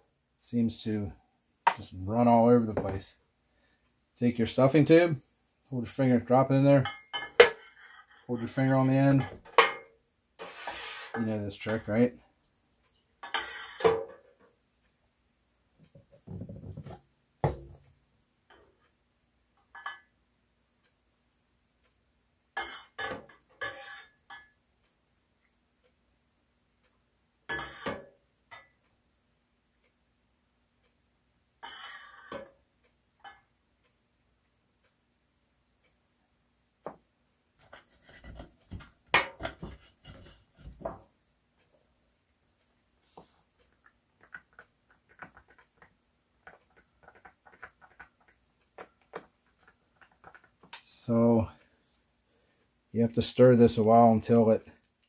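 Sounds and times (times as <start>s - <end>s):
wall clock ticking: 17.6s - 23.5s, 24.1s - 55.0s
stir stick ticking in cup: 43.6s - 50.8s.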